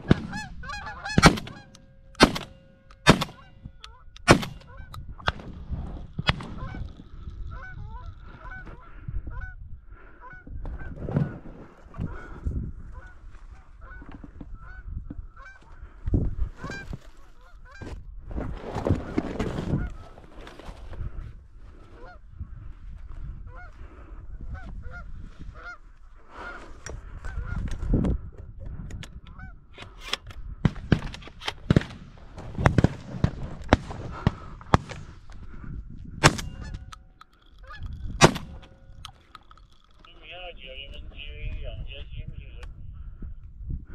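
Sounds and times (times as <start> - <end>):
geese honking: 0.0 - 5.0, 6.4 - 9.6, 36.5 - 41.1
wind rumble on microphone: 3.4 - 37.0, 37.6 - 39.2, 40.2 - 43.9.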